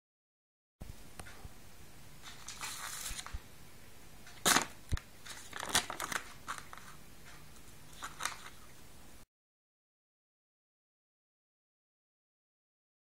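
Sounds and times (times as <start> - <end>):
plastic tray crinkling: 2.2 - 3.4, 4.4 - 7.0, 7.9 - 8.6.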